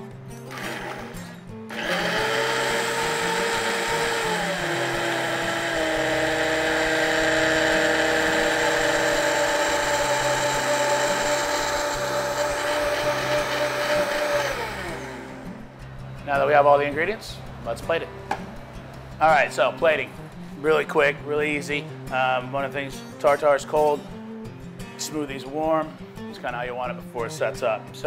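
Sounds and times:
blender motor whining: 0.5 - 15.6.

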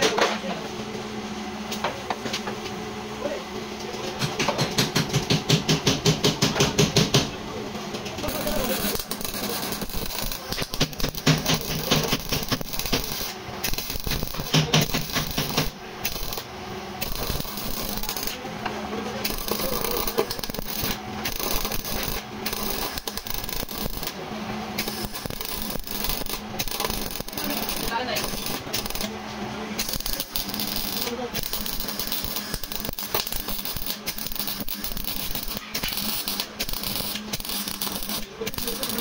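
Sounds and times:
rapid clicking and tapping: 8.4 - 18.4, 19.2 - 24.2, 24.8 - 29.1, 29.8 - 39.0.

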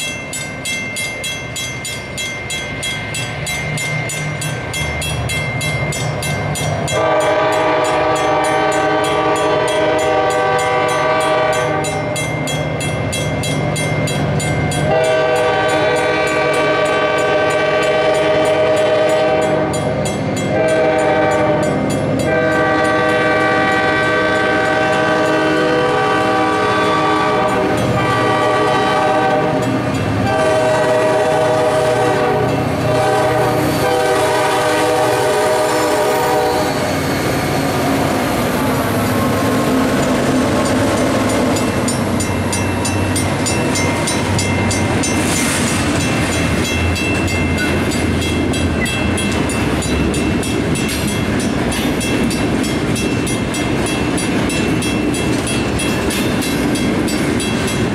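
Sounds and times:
crossing bell ringing: 0.0 - 57.9
train rumble: 0.0 - 57.9
train air horn blasts: 6.9 - 12.1, 14.9 - 19.9, 20.5 - 39.0.

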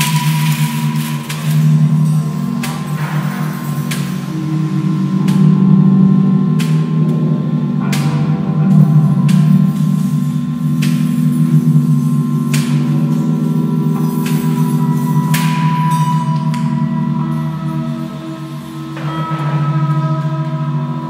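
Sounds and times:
low electronic drone: 0.0 - 21.0
metal struck ringing: 0.0 - 21.0.

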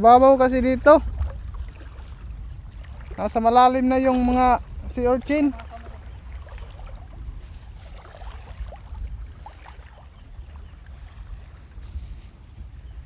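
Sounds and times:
wind rumbling on microphone: 0.0 - 13.0
small splashes and trickles of water: 1.0 - 3.6, 4.6 - 12.2.

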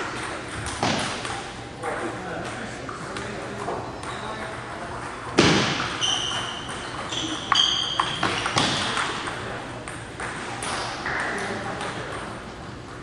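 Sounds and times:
shoes squeaking on hardwood floor: 5.9 - 8.8.

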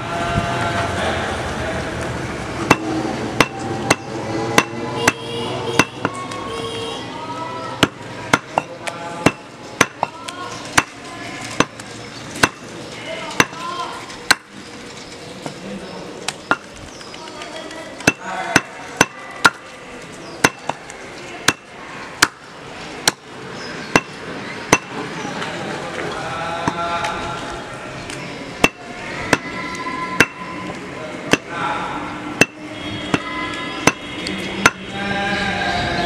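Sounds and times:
cleaver chopping meat on wood: 2.7 - 5.2, 5.8 - 6.2, 7.8 - 11.8, 12.4 - 12.7, 13.4 - 13.6, 14.3 - 14.5, 18.0 - 19.6, 20.4 - 20.8, 21.4 - 22.4, 23.0 - 23.3, 24.0 - 25.0, 31.3 - 31.5, 32.4 - 33.3.

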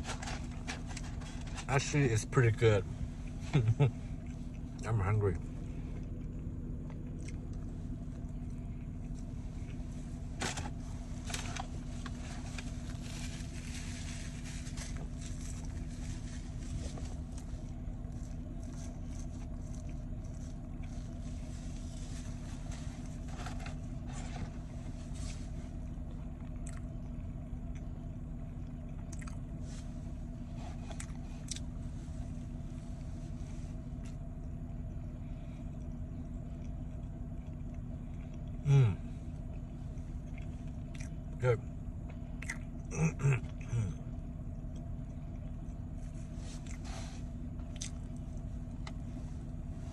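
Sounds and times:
car cabin hum: 0.0 - 49.9
person chewing: 3.2 - 4.8, 5.9 - 10.3, 14.3 - 23.3, 26.0 - 28.0, 28.6 - 29.5, 30.7 - 31.8, 35.6 - 41.4, 42.0 - 44.0, 44.6 - 49.0.

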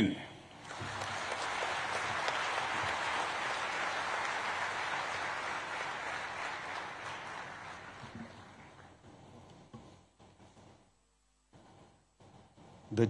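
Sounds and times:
audience applauding: 0.6 - 8.8.

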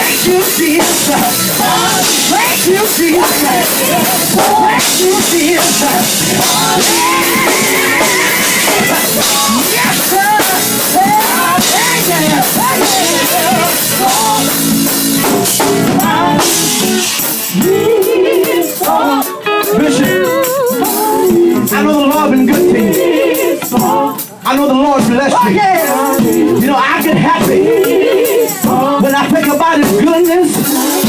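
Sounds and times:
drums and band accompaniment: 0.0 - 31.0
male vocal group singing gospel: 0.0 - 31.0.

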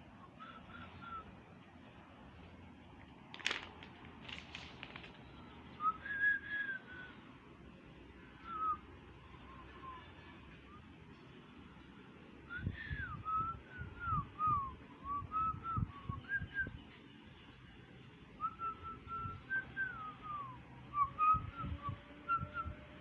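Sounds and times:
person whistling a tune: 5.8 - 7.2, 12.5 - 16.8.

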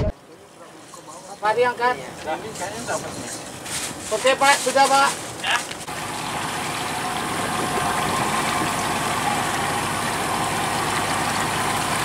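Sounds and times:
water noise: 0.0 - 12.0
wind: 0.0 - 12.0
boat engine idling: 5.4 - 12.0.

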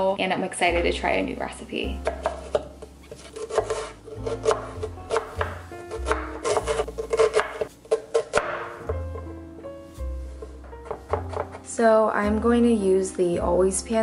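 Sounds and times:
background music with low notes: 0.0 - 14.0
knife chopping on cutting board: 2.0 - 9.4, 10.4 - 11.6.

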